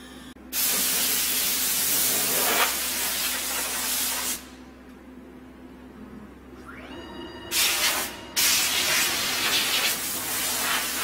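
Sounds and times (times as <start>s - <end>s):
faint low hum: 4.7s - 9.0s.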